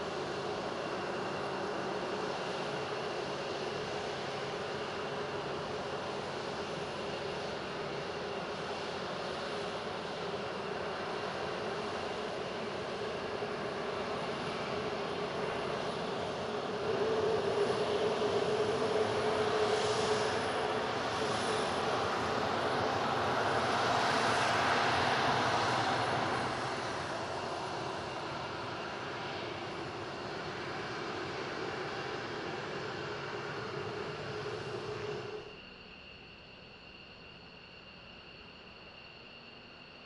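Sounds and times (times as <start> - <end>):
jet engines taxiing: 0.0 - 40.0.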